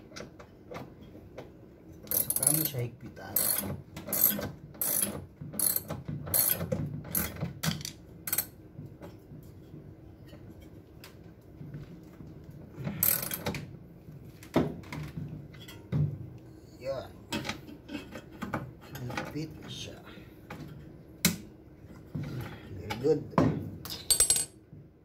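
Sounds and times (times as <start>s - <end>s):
ratchet wrench clicking: 2.1s - 2.8s, 3.4s - 6.6s.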